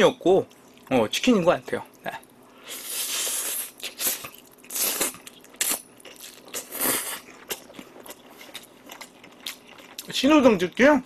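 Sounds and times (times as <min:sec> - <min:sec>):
wet chewing: 0:01.8 - 0:10.2.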